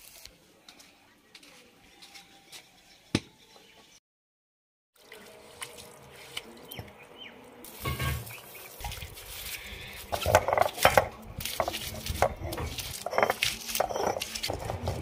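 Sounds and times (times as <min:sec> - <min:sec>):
water splashing on stone: 0:07.7 - 0:14.5.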